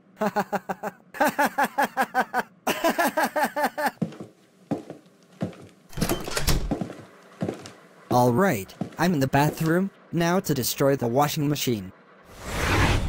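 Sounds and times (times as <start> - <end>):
cartoon character laughing: 0.2 - 4.0.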